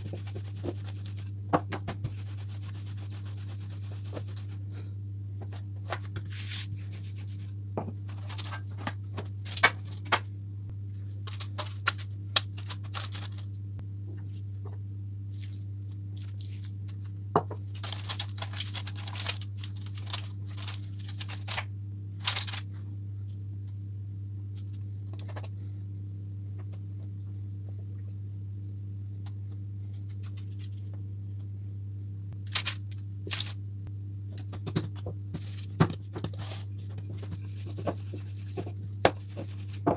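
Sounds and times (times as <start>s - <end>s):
rolling pin on dough: 0.0s - 8.0s
steady low hum: 0.0s - 39.9s.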